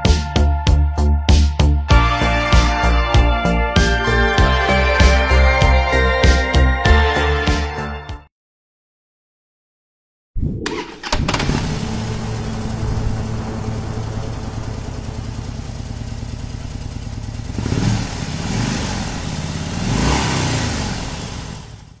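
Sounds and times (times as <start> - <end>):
motorcycle engine idling and revving: 10.8 - 22.0.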